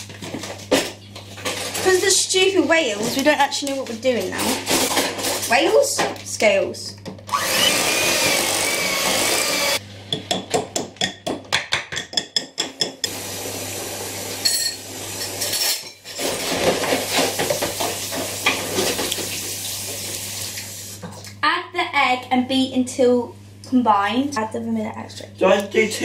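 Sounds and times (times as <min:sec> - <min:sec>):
electric hand mixer whining: 0:07.3 - 0:09.8.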